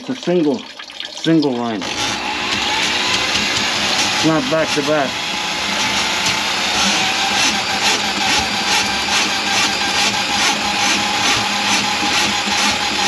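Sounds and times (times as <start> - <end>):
drain cleaning machine whirring: 1.3 - 13.0.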